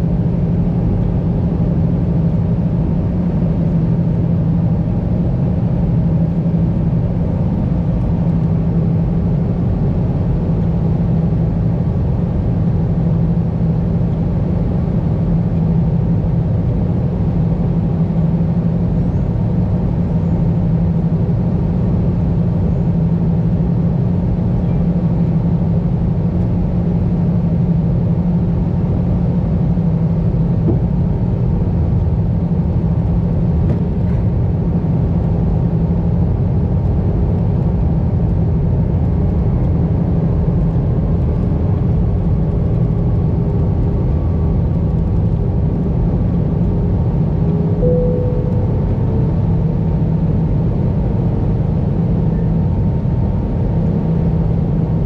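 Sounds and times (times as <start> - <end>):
aircraft engine drone: 0.0 - 55.0
low hum: 0.0 - 55.0
faint steady tones: 47.4 - 50.7.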